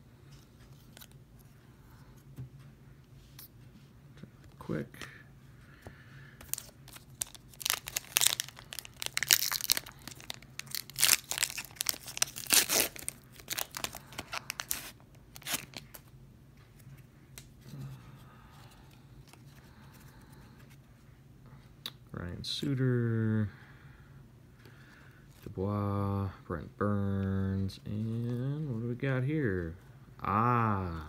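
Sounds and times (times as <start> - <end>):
cards rustling: 6.4 - 16.1
foil wrapper tearing and crinkling: 6.5 - 16.0.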